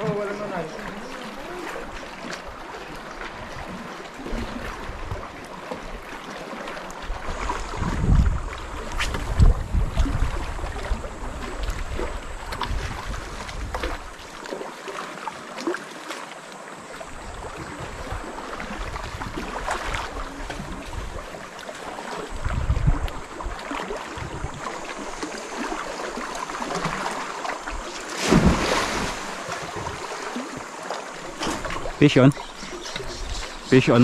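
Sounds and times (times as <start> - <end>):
seawater wash: 0.0 - 34.0
wind buffeting microphone: 7.1 - 14.2, 17.1 - 21.3, 22.3 - 25.3, 27.6 - 30.7.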